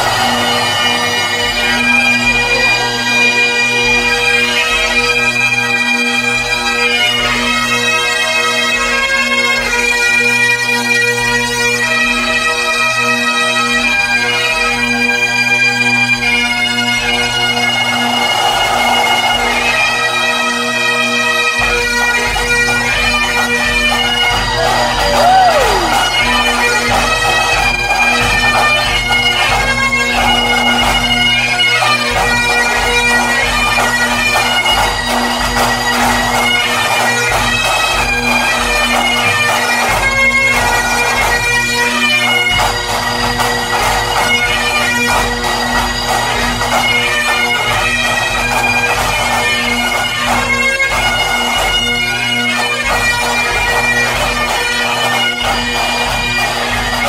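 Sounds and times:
bagpipes melody over drones: 0:00.0 - 0:57.0
marching drums: 0:17.2 - 0:31.1, 0:52.8 - 0:57.0.

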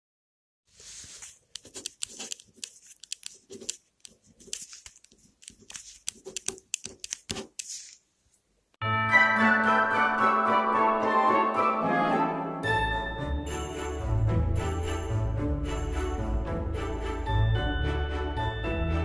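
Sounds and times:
pen writing on paper: 0:01.5 - 0:07.8.

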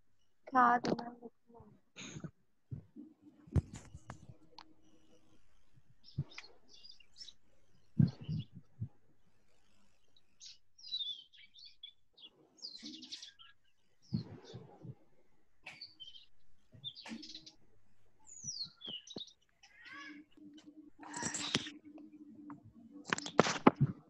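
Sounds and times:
birds chirping: 0:02.0 - 0:24.0
brief rustle: 0:21.0 - 0:21.8, 0:23.0 - 0:24.0.

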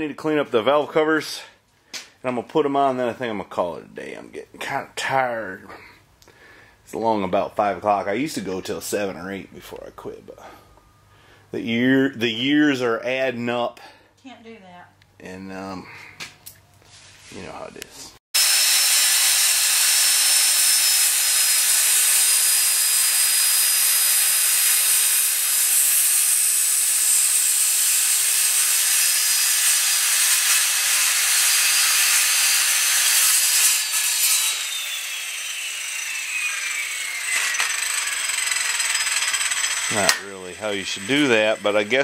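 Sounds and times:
circular saw cutting wood: 0:18.4 - 0:42.0.

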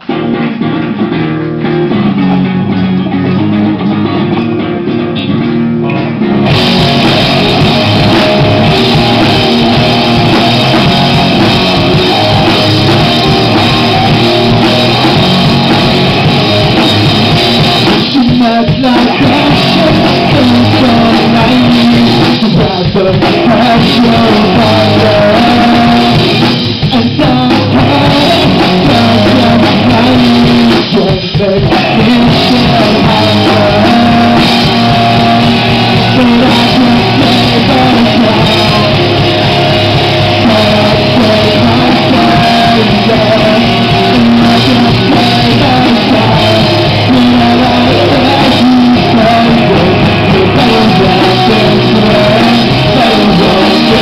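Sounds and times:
electric guitar: 0:00.0 - 0:54.0
live rock band playing: 0:00.0 - 0:54.0
lead vocal singing: 0:06.5 - 0:54.0.

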